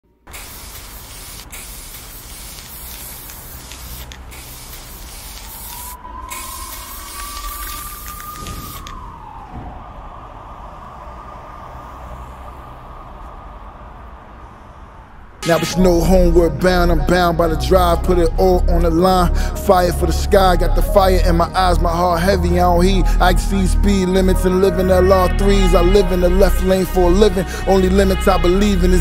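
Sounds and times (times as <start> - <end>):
spray can hissing: 0.2 - 8.9
rising tone: 5.3 - 29.0
low rumble: 8.6 - 29.0.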